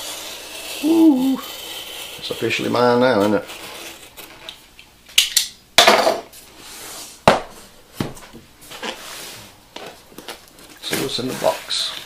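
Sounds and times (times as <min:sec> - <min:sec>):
cardboard scraping rustle: 0:08.7 - 0:12.0.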